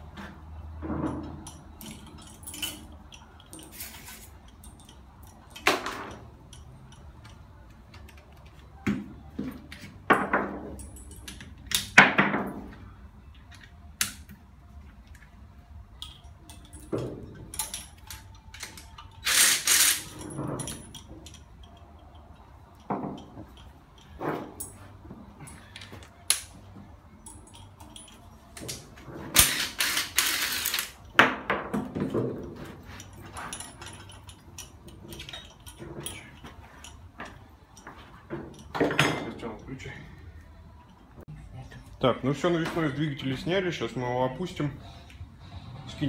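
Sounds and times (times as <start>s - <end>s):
metallic clanks of tools: 0.8s - 8.2s, 15.9s - 40.0s.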